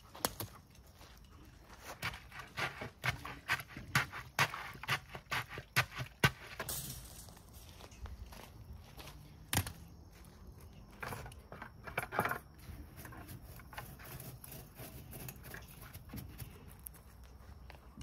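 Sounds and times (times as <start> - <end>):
crunches on loose gravel: 0.0 - 9.3
metal rebar clinking and rattling: 6.6 - 8.1.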